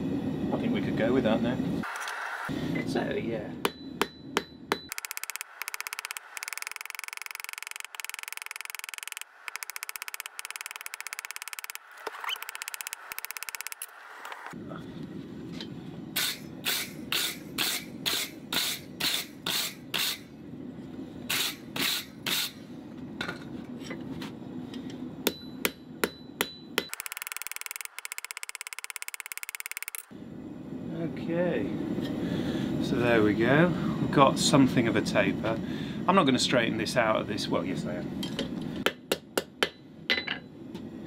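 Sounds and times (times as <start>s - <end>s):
anvil ringing: 3.6s - 5.0s
hammer striking steel on anvil: 3.6s - 5.0s, 25.2s - 27.0s, 38.8s - 40.5s.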